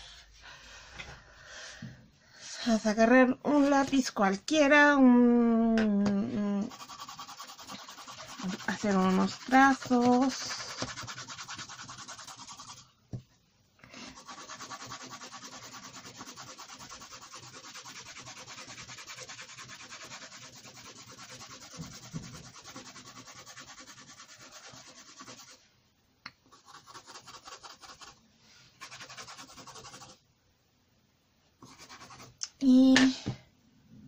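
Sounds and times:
pencil scribbling on paper: 0:06.7 - 0:12.8, 0:14.0 - 0:25.6, 0:26.5 - 0:28.2, 0:28.8 - 0:30.2, 0:31.6 - 0:32.4.

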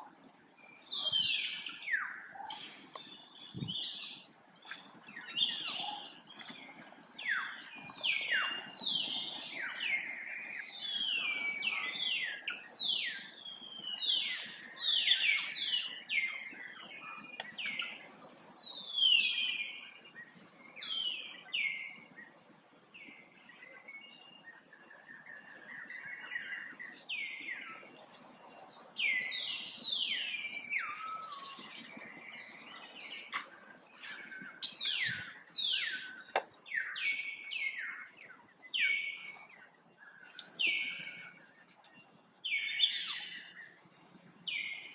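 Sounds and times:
high falling animal chirps: 0:30.9 - 0:32.1.

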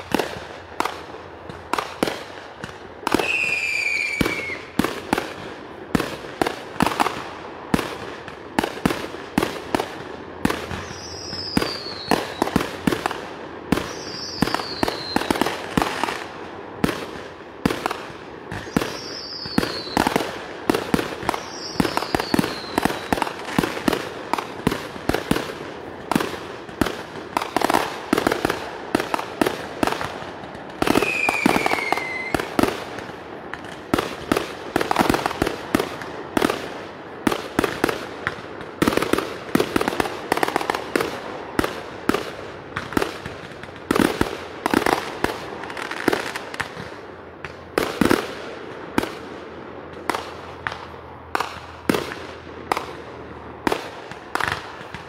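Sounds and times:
fireworks bangs and crackles: 0:00.0 - 0:55.0
falling firework whistles: 0:03.1 - 0:04.9, 0:10.6 - 0:12.7, 0:13.7 - 0:16.0, 0:18.5 - 0:20.3, 0:20.9 - 0:23.7, 0:30.8 - 0:32.7.

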